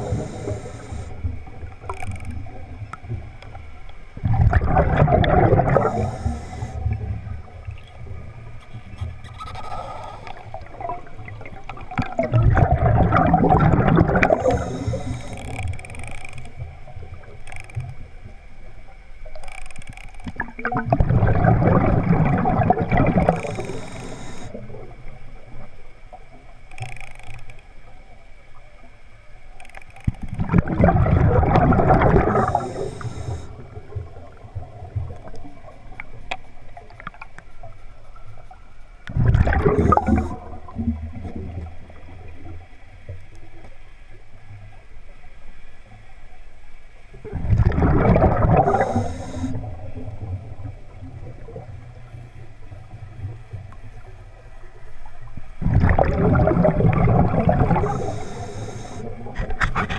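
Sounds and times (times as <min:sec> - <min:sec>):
exhaled bubbles bursting: 0:04.2 - 0:06.9, 0:09.4 - 0:15.2, 0:20.4 - 0:23.9, 0:30.4 - 0:32.9, 0:39.1 - 0:41.6, 0:47.2 - 0:50.5, 0:55.6 - 0:58.2.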